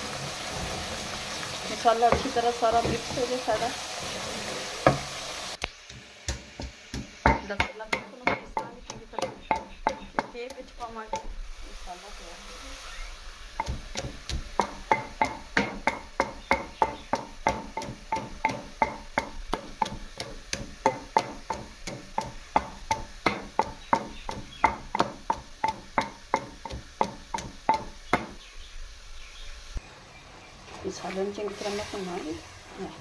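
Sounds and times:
pestle pounding in stone mortar: 5.8s - 11.4s, 13.6s - 28.4s.

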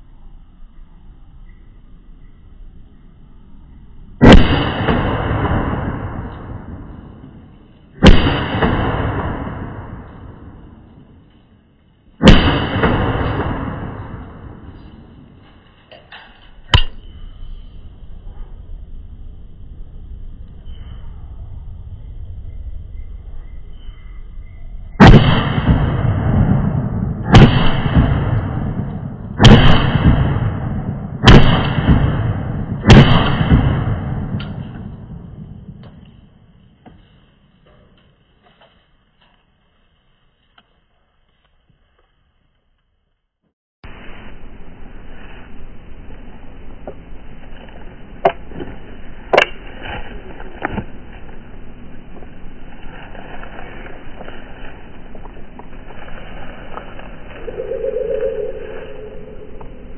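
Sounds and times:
slowed revolver shots ringing: 4.2s - 7.3s, 8.0s - 10.8s, 12.2s - 15.0s, 25.0s - 35.8s
gunshots with rolling echo: 4.2s - 11.2s, 12.2s - 15.4s, 25.0s - 36.5s.

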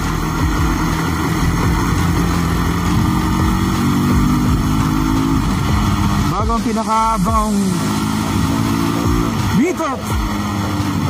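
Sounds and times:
motorcycle engine running: 0.0s - 11.0s
road and wind noise: 0.0s - 11.0s.

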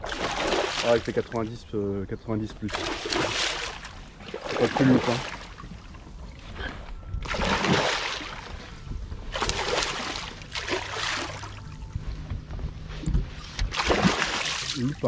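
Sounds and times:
fish splashing in water: 0.0s - 1.3s, 2.6s - 5.7s, 7.2s - 8.7s, 9.3s - 11.6s, 13.6s - 14.9s.

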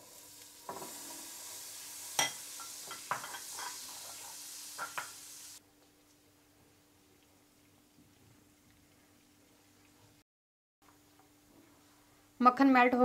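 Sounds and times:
butter sizzling in a pan: 0.0s - 5.6s.

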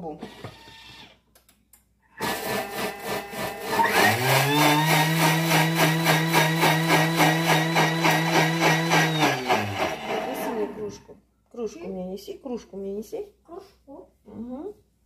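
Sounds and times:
blender motor spinning blades in water: 2.2s - 10.8s.

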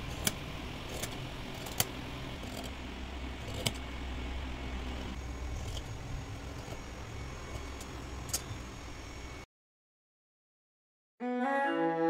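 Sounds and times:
steady low hum: 0.0s - 9.5s
scissors cutting fabric: 3.4s - 3.8s.

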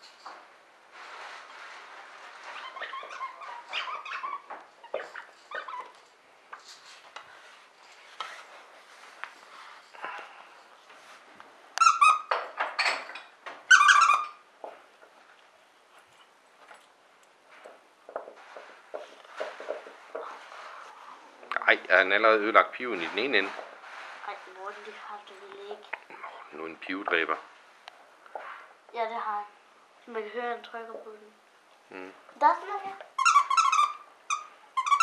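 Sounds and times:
dog toy squeaker squeaking: 11.8s - 12.3s, 13.7s - 14.4s, 33.1s - 35.0s.

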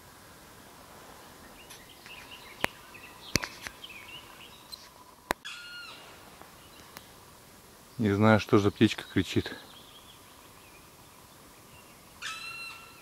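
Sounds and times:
birds chirping and calling: 1.4s - 7.2s, 8.0s - 13.0s
sharp snaps: 2.0s - 3.8s
harsh bird cry: 5.4s - 6.1s, 11.7s - 13.0s.

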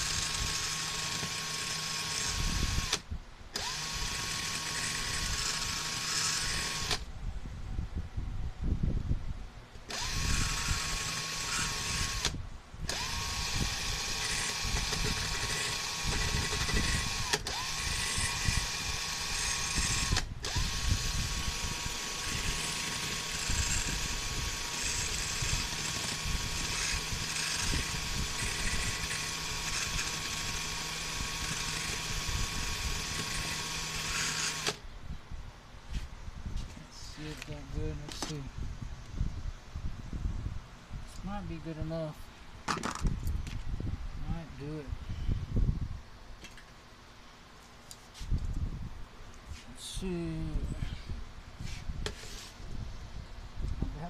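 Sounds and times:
cordless drill whining: 0.0s - 7.1s, 9.8s - 34.8s.

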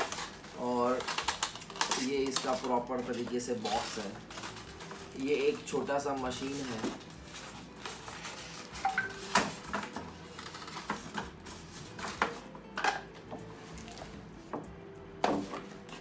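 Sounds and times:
plastic and cardboard rustling: 0.0s - 12.5s, 15.2s - 16.0s.

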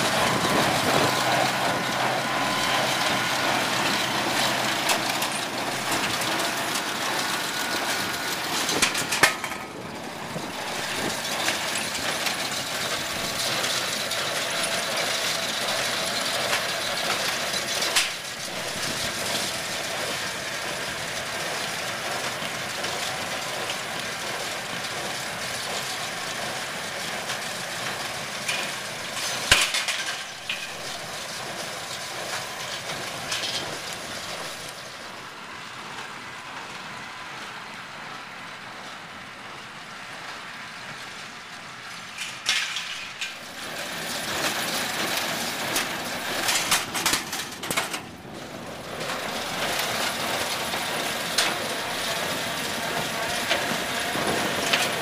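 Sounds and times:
tractor and baler running: 0.0s - 55.0s
machinery clicks and knocks: 0.1s - 20.1s, 28.4s - 34.8s, 42.0s - 55.0s.

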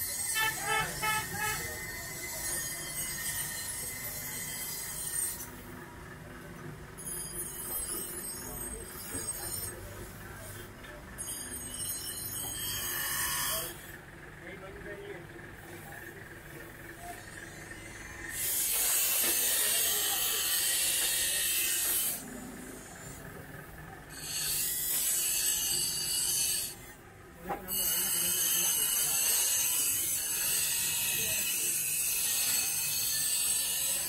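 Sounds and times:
blade grinding on bench grinder: 0.0s - 5.6s, 11.5s - 14.0s, 17.2s - 23.4s, 24.1s - 27.0s, 27.7s - 34.0s.

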